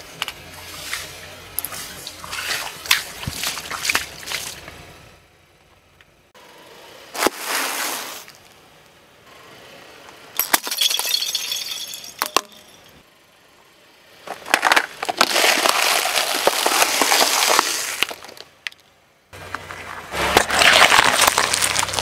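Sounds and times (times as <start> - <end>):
plastic cubes cracking: 14.3 - 18.8, 20.4 - 22.0
tyre crunching snacks: 14.3 - 18.8, 19.5 - 22.0.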